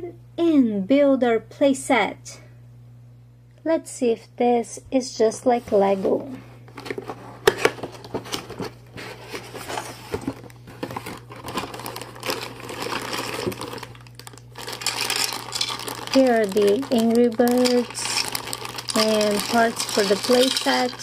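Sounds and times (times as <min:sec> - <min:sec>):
plastic bags crinkling: 0:09.4 - 0:21.0.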